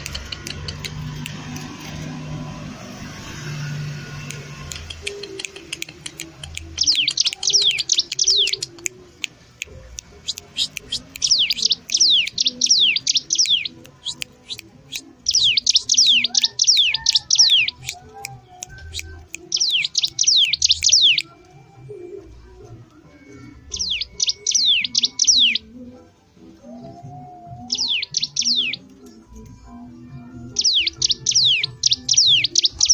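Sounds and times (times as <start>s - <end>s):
songbird whistling: 4.7s - 21.8s, 23.6s - 25.7s, 26.8s - 28.8s, 30.6s - 32.9s.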